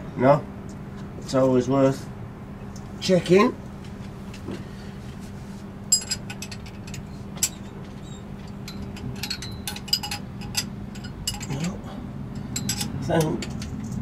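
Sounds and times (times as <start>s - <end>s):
spanner clinking on metal: 5.9s - 14.0s.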